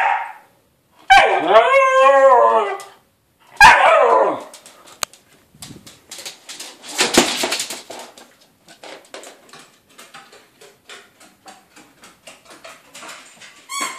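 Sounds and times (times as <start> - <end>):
dog claws clicking on wooden floor: 4.4 - 13.9.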